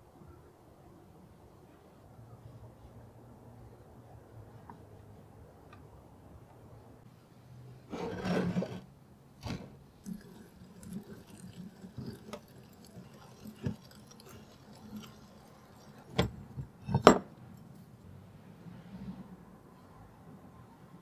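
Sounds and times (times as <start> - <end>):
metal scraping: 7.9 - 8.9.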